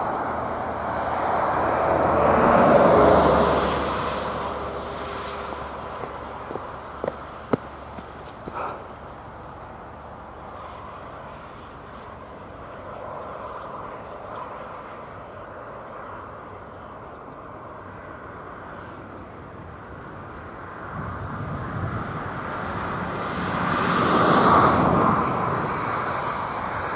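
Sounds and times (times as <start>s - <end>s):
motor vehicle passing: 0.4s - 10.0s.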